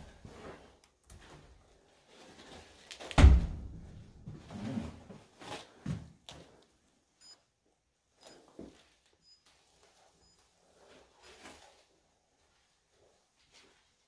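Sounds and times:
loud thud: 3.2s - 4.1s.

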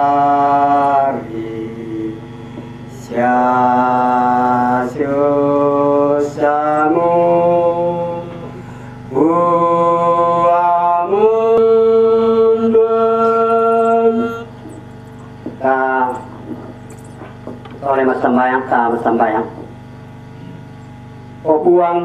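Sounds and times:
man chanting into microphone: 0.0s - 2.3s, 2.9s - 14.6s, 15.5s - 16.6s.

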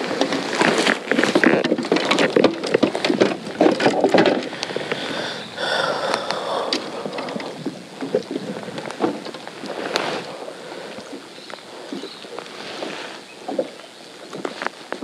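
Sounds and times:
fishing tackle clicks and knocks: 0.0s - 5.2s, 6.0s - 10.0s
wind on microphone: 0.0s - 15.0s.

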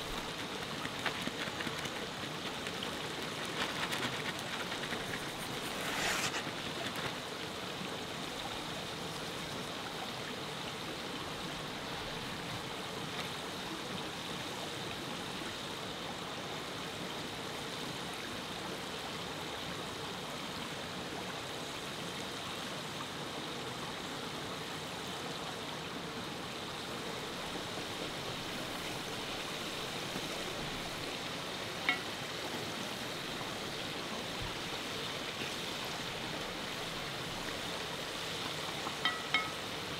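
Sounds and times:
river water rushing: 25.6s - 39.9s.

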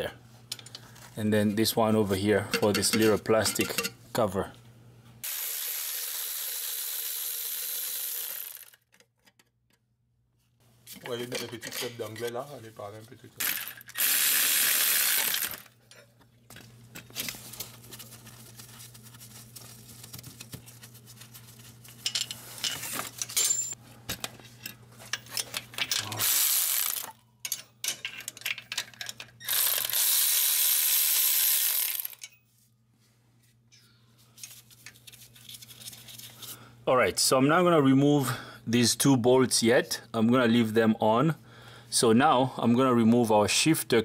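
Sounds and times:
tools and bolts clinking: 2.5s - 4.0s, 22.0s - 29.9s
power wrench spinning bolts: 5.2s - 8.8s, 13.4s - 15.7s, 26.2s - 27.7s, 28.5s - 32.4s.

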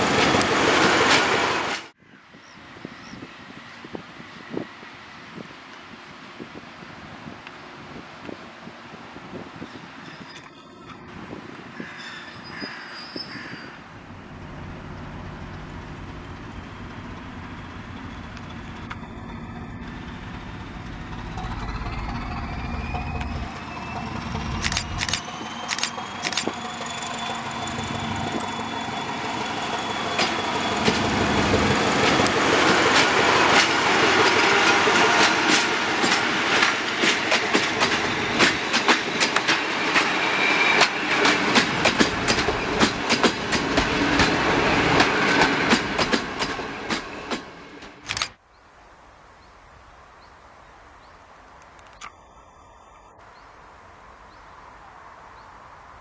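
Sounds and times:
train wheels clickety-clack: 0.0s - 1.9s, 29.8s - 48.3s
locomotive engine running: 14.1s - 47.1s.

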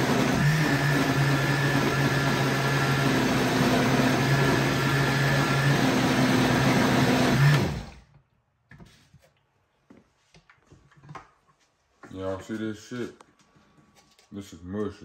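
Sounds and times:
blender motor winding down: 0.0s - 8.1s
blender running: 0.0s - 8.1s.

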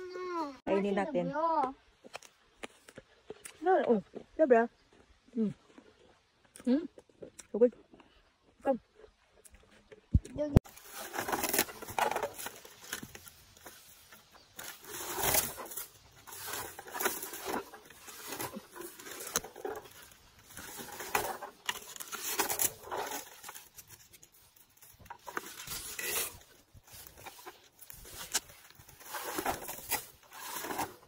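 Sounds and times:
berry picker rustling through leaves: 10.6s - 31.0s.

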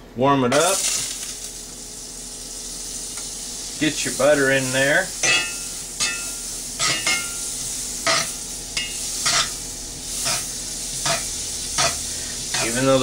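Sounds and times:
butter sizzling in a skillet: 0.5s - 13.0s
metal spatula scraping pan: 8.0s - 9.6s.

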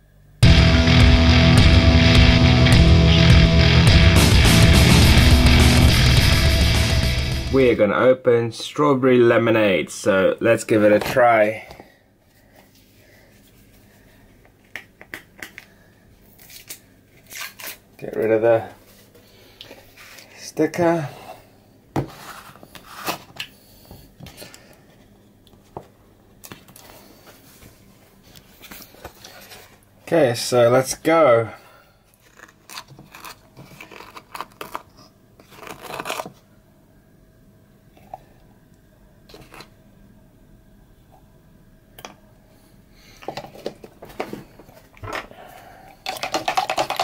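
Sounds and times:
drink rattling in plastic cup: 46.0s - 47.0s.

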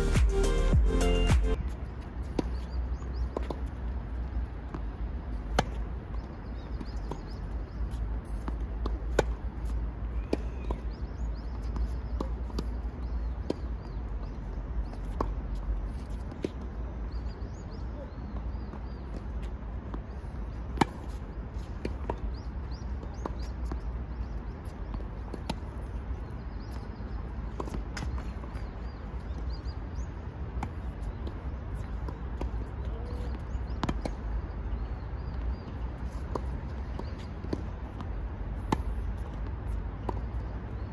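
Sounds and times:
birds chirping: 5.4s - 40.9s
tennis ball struck by rackets: 36.3s - 39.4s.

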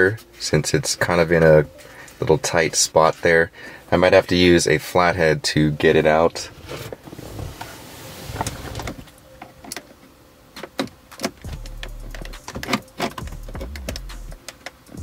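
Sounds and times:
screwdriver scraping plastic trim: 12.1s - 14.0s.

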